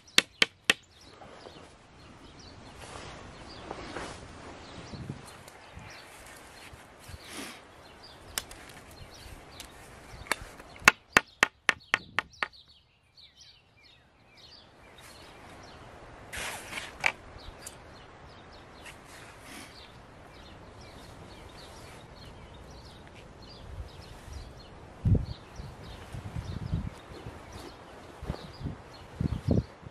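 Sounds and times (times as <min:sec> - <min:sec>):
wooden poles knocking: 0:00.0 - 0:00.8, 0:10.3 - 0:12.6
birds chirping: 0:00.0 - 0:29.9
short rustle: 0:02.6 - 0:07.7.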